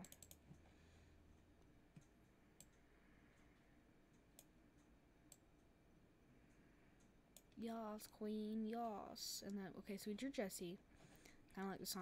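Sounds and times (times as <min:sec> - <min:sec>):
faint computer clicks: 0:00.0 - 0:00.6.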